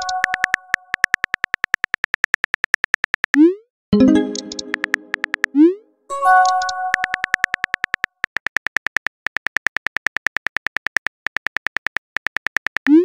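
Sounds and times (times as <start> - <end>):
keyboard tapping clicks: 0.0 - 3.2, 4.0 - 10.4
electronic message chime: 4.0 - 5.3, 6.1 - 7.5.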